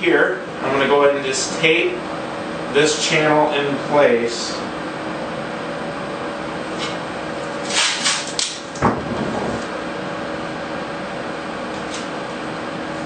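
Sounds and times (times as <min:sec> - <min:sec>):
room hum: 0:00.0 - 0:13.0
tape ripping off roll: 0:07.6 - 0:09.7.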